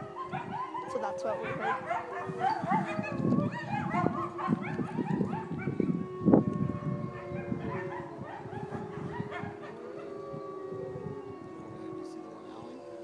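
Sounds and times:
wolves yipping: 0.0s - 5.9s, 6.8s - 10.3s
wolves howling: 0.0s - 13.0s.

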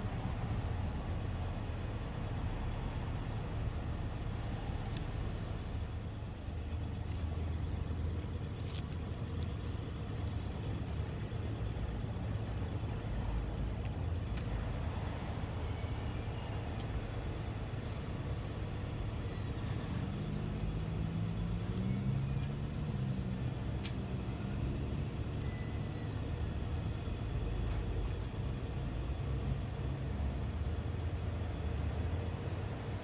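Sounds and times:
motor vehicles rumbling: 0.0s - 33.0s.

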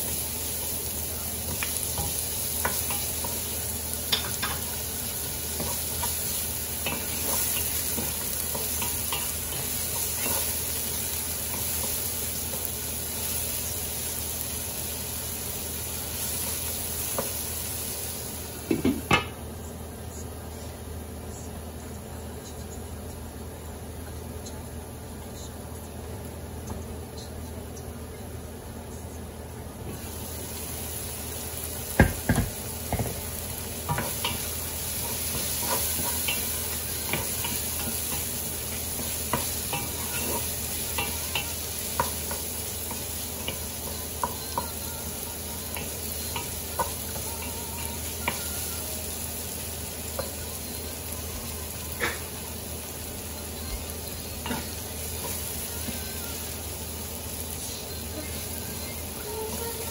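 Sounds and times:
onions sizzling in oil: 0.0s - 19.5s, 29.8s - 59.9s
wooden spoon tapping pan: 1.4s - 12.7s, 31.9s - 33.2s, 33.8s - 48.7s, 50.1s - 50.4s.

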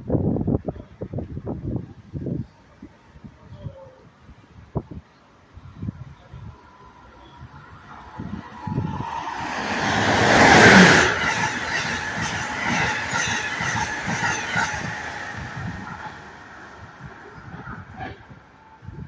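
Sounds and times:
train passing rumble: 5.4s - 19.0s
clatter of train coaches: 8.7s - 16.4s.

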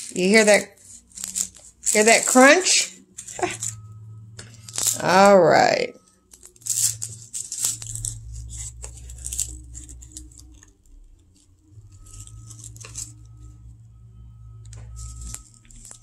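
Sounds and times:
crisp pastry crackling: 0.0s - 13.8s, 14.5s - 16.0s.

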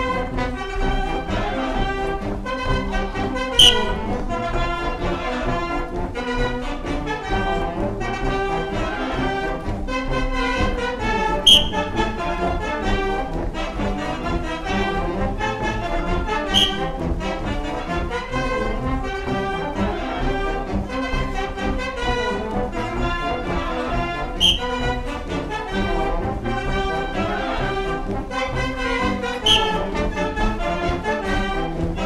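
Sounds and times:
brass band playing lively tune: 0.0s - 32.0s
short shrill high note: 3.6s - 4.2s, 11.5s - 12.0s, 16.5s - 17.0s, 24.4s - 24.8s, 29.5s - 29.8s.

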